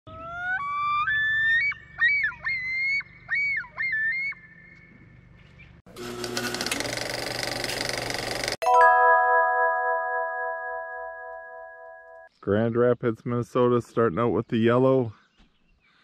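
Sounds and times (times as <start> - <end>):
loon calling: 0.2 - 4.8
bright ringing chime: 8.6 - 12.3.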